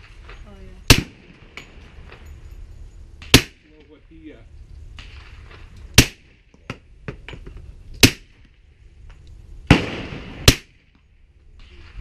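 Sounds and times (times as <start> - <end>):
suppressed pistol shots: 0.9 - 1.7, 3.2 - 3.6, 6.0 - 6.4, 8.0 - 8.4, 9.7 - 10.8.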